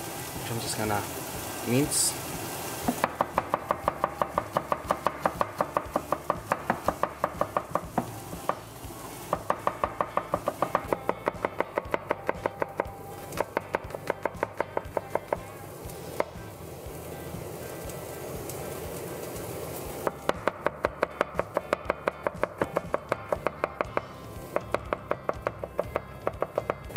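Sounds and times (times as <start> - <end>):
knife chopping on cutting board: 2.9 - 8.6, 9.3 - 15.5, 20.1 - 26.9.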